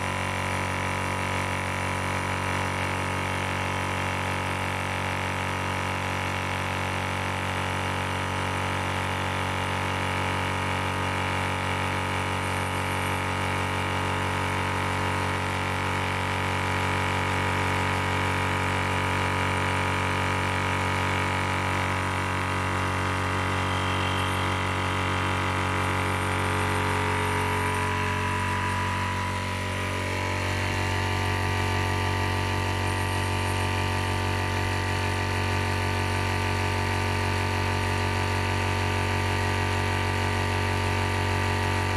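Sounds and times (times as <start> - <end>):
air compressor droning hum: 0.0 - 41.9.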